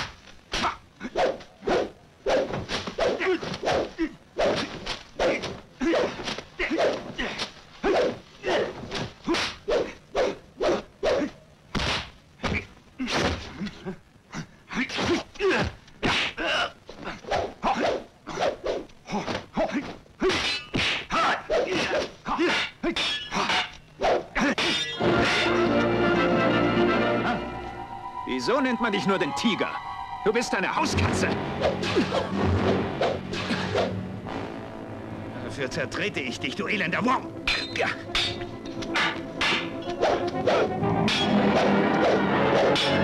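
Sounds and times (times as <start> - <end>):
orchestral score: 24.9 - 43.0.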